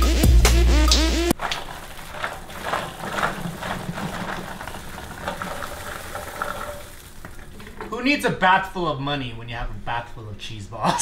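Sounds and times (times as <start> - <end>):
cheese balls rattling in plastic tub: 1.3 - 8.2.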